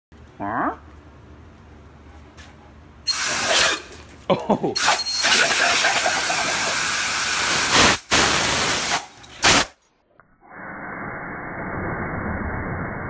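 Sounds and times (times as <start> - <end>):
compressed air hissing from blow gun: 3.1 - 3.8, 5.2 - 9.8.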